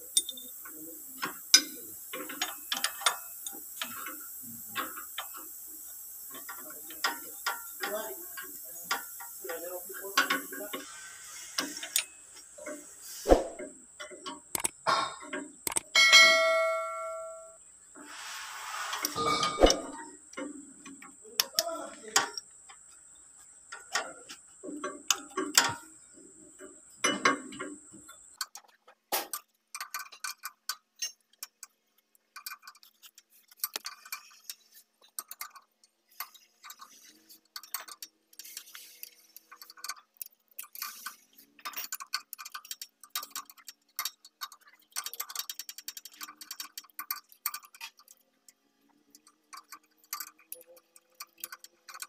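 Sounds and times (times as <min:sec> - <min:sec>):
hand tools clinking on metal: 0:00.0 - 0:04.2, 0:19.1 - 0:20.5.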